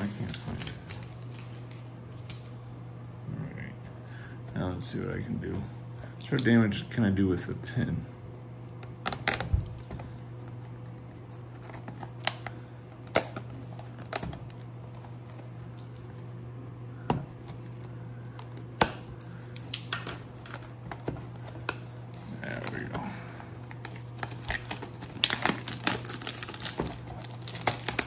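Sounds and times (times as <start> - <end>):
low steady hum: 0.0 - 28.0.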